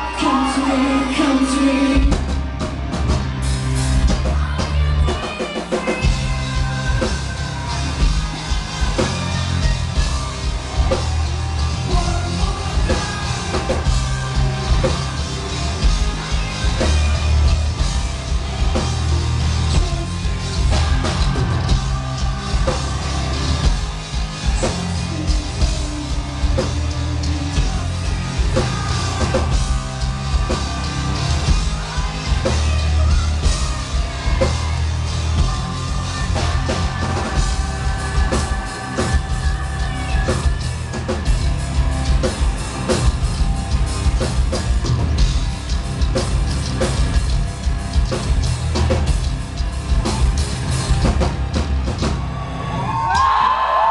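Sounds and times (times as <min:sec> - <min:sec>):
woman singing: 0:00.0 - 0:02.4, 0:04.0 - 0:23.9, 0:24.5 - 0:42.2
metal band playing: 0:00.0 - 0:53.9.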